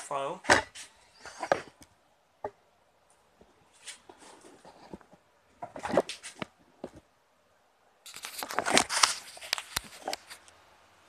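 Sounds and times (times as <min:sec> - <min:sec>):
camera handling rustling: 0:03.8 - 0:07.0, 0:08.1 - 0:10.5.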